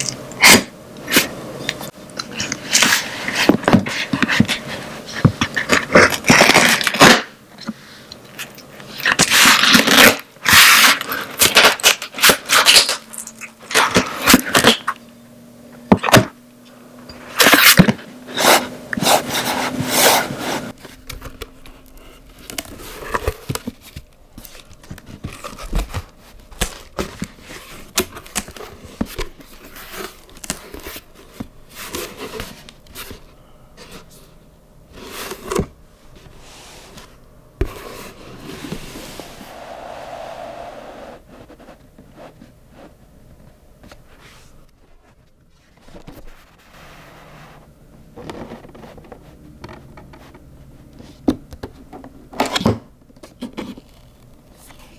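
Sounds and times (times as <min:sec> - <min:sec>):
packing tape ripping off cardboard: 0:05.6 - 0:07.3, 0:09.0 - 0:13.0
cardboard scraping and rustling: 0:34.9 - 0:43.0.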